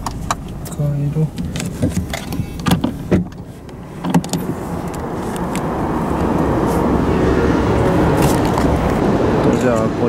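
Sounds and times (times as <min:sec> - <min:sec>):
outside noise: 0:00.0 - 0:10.0
car door latch clicking: 0:01.3 - 0:05.7.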